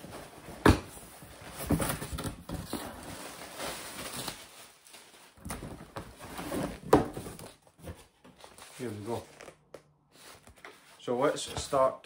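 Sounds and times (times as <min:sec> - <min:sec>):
cardboard box scraping and crinkling: 0:06.1 - 0:07.6.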